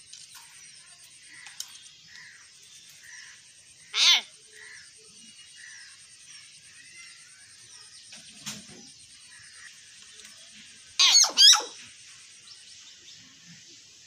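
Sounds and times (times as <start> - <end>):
faint high bird chirping: 0.0 - 13.8
myna harsh calls: 3.9 - 4.3.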